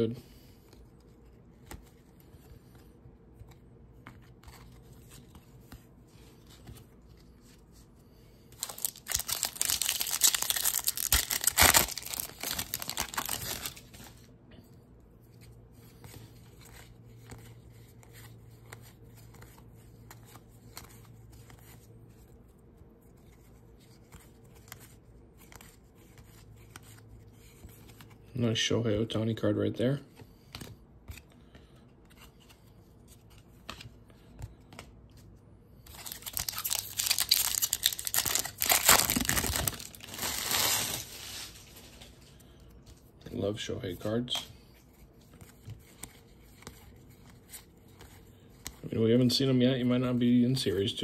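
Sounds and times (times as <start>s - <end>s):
cards handled with soft clicks: 0.6s - 7.3s, 23.1s - 28.3s, 30.2s - 38.5s, 45.1s - 48.8s
foil wrapper tearing and crinkling: 8.6s - 13.9s, 35.9s - 42.0s.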